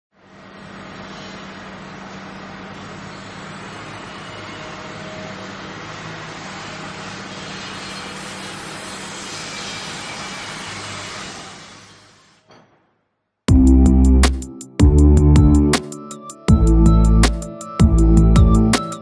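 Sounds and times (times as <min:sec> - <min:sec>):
mechanical drone with hiss: 0:00.2 - 0:12.4.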